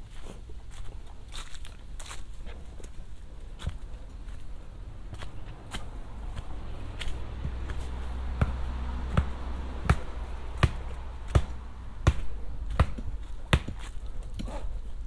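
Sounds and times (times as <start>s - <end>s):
footsteps on dirt and leaves: 0.0s - 15.0s
low rumble: 2.9s - 14.3s.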